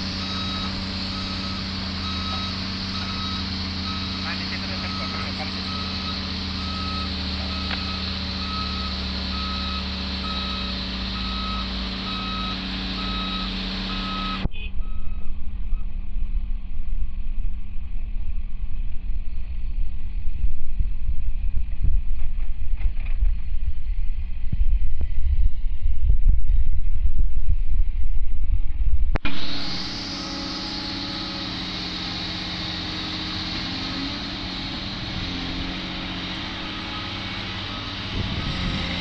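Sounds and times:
truck reversing alarm beeps: 0.0s - 16.0s, 29.3s - 39.0s
excavator diesel engine running: 0.0s - 18.8s, 29.2s - 39.0s
uneven low rumble: 14.4s - 29.4s.

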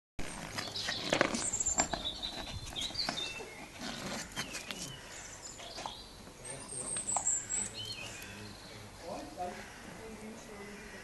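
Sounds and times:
birds chirping: 0.2s - 11.0s
stone scraping on concrete: 0.3s - 5.0s.

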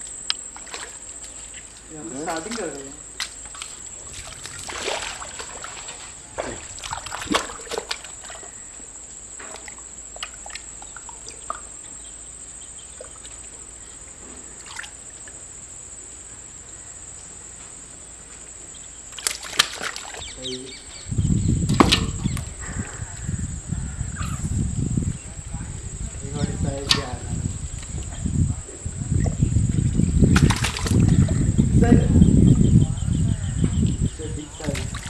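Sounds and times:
water trickling: 0.0s - 15.7s, 33.9s - 35.0s
small splashes: 0.3s - 8.8s, 9.4s - 12.0s, 12.8s - 13.8s, 14.4s - 15.4s, 19.0s - 20.9s, 21.6s - 23.0s, 26.6s - 28.2s, 28.8s - 31.4s, 34.5s - 35.0s
hands sloshing in mud water: 0.5s - 8.6s, 19.1s - 20.4s, 29.0s - 31.4s, 34.6s - 35.0s.

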